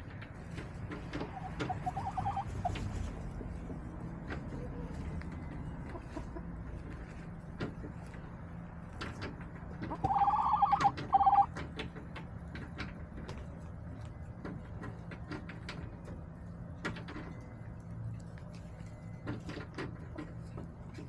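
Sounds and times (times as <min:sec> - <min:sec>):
hens tapping and knocking: 0:00.0 - 0:21.0
hen calling: 0:01.2 - 0:02.8, 0:09.8 - 0:11.5.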